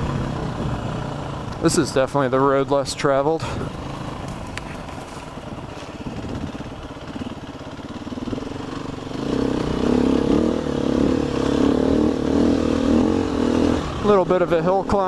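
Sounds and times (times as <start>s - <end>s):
dirt bike engine: 0.0s - 15.0s.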